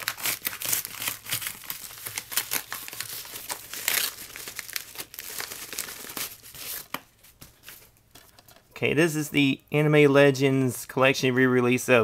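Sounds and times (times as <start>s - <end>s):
paper envelope tearing and crinkling: 0.0s - 7.0s.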